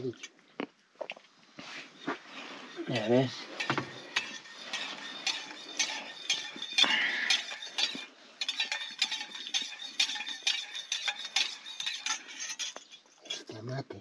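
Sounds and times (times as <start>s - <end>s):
cups and cutlery clinking: 2.0s - 13.5s.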